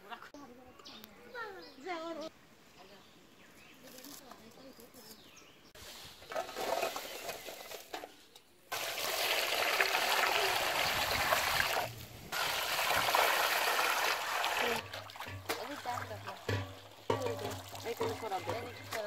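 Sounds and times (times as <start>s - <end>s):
water pouring into steel basin: 8.7s - 19.0s.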